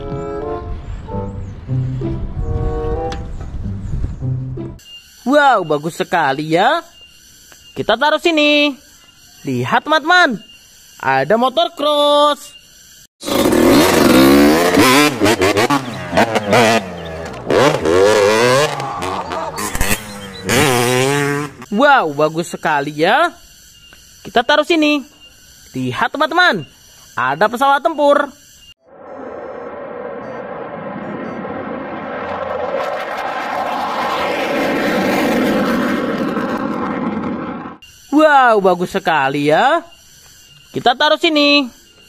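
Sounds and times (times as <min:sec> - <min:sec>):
dirt bike engine revving: 0:13.2 - 0:21.7
jet roar with whine: 0:28.8 - 0:37.8.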